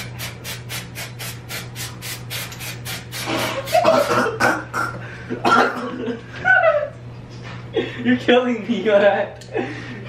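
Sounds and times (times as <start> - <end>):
aerosol can spraying: 0.0 - 4.0
young man coughing: 3.7 - 6.2.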